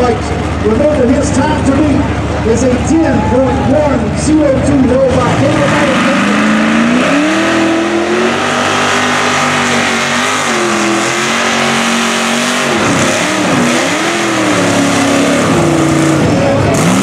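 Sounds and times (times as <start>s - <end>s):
truck engine revving: 0.0s - 17.0s.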